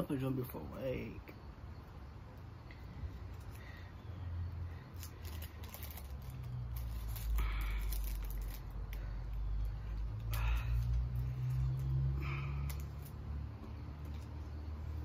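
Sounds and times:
sharp crackles: 0:04.7 - 0:13.2
plastic package crinkling: 0:05.0 - 0:09.1.

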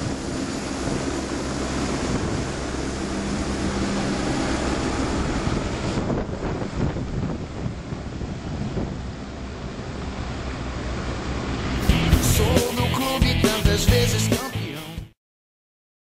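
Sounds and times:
wind buffeting microphone: 0:00.0 - 0:11.8
helicopter rotor and engine: 0:00.0 - 0:12.0.

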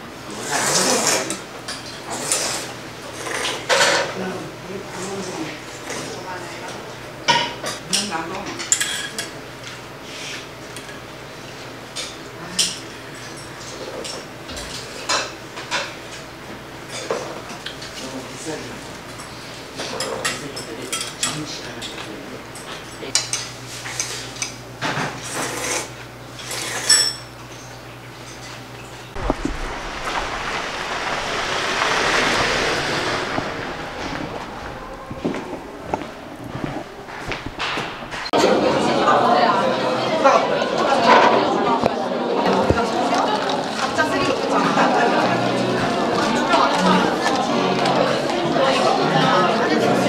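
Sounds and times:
steady rushing noise: 0:29.2 - 0:38.4.

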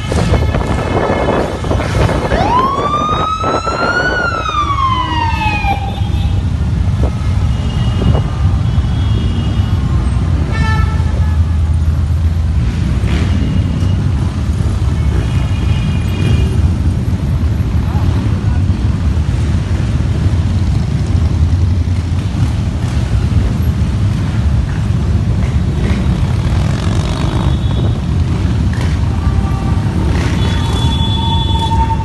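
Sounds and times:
siren wailing: 0:02.1 - 0:06.1, 0:30.8 - 0:32.0
motorcycles rumbling past: 0:24.2 - 0:29.2.

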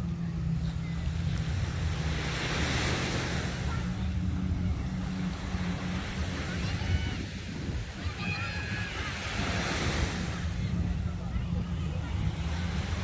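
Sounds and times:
sea waves washing on a beach: 0:00.0 - 0:13.0
wind rumbling on microphone: 0:00.0 - 0:13.0.

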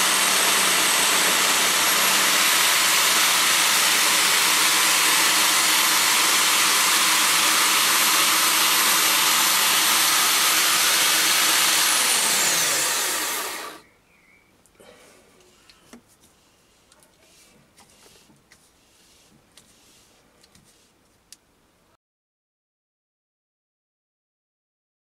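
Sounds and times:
drill motor milling metal: 0:00.0 - 0:13.8.

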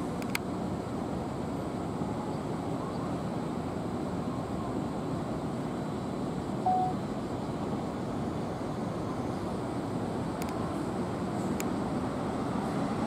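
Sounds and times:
city street traffic hum: 0:00.0 - 0:13.0
high beep: 0:06.7 - 0:07.0.

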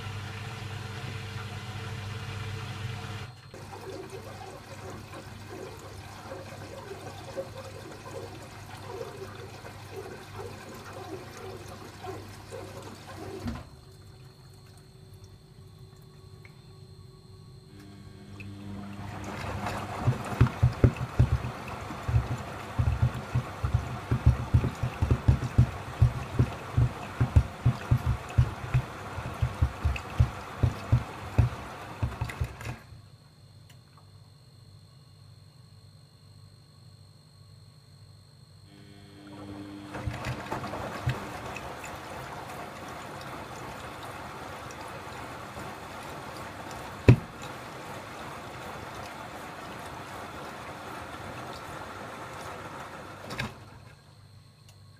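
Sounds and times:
water sloshing in washing machine: 0:00.0 - 0:16.4, 0:18.3 - 0:33.0, 0:39.6 - 0:54.2
low thuds of laundry: 0:19.3 - 0:32.8, 0:47.0 - 0:47.4
knocks: 0:20.1 - 0:32.6.

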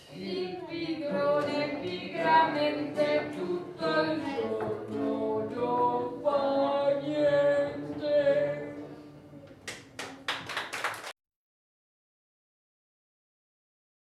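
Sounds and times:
voices singing: 0:00.0 - 0:09.0
acoustic guitar: 0:00.0 - 0:10.3
hand clapping: 0:09.5 - 0:11.1.

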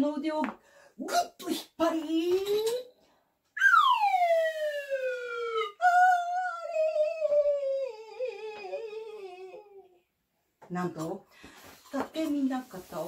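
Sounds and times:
falling whistle-like glide: 0:03.6 - 0:05.7.

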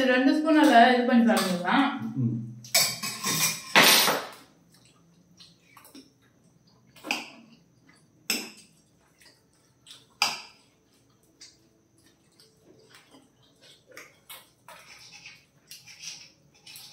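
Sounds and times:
spoons clinking on plates: 0:02.7 - 0:04.3
wet eating noise: 0:04.4 - 0:16.9.

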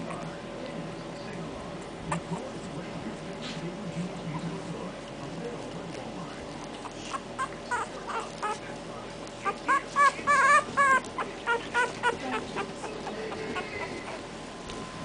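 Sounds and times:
puppies whimpering and squealing: 0:01.9 - 0:02.7, 0:06.4 - 0:15.0.

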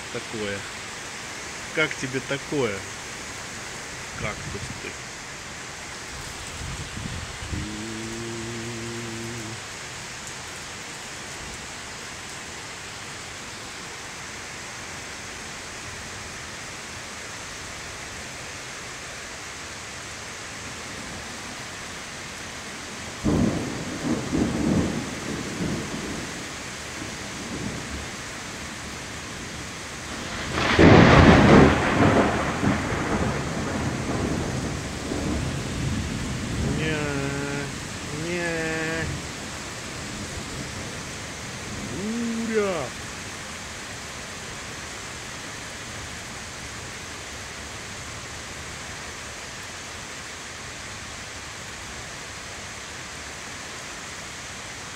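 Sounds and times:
heavy rain: 0:00.0 - 0:54.9
thunder rumbling: 0:06.2 - 0:09.6, 0:23.2 - 0:26.4, 0:30.1 - 0:38.1.

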